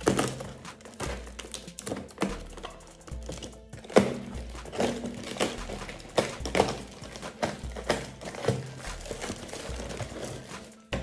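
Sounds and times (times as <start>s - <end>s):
cardboard box tearing: 3.3s - 10.7s.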